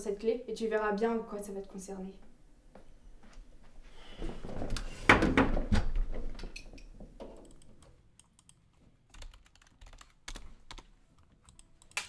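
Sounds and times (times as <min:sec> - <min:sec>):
keyboard typing: 0:07.3 - 0:12.0.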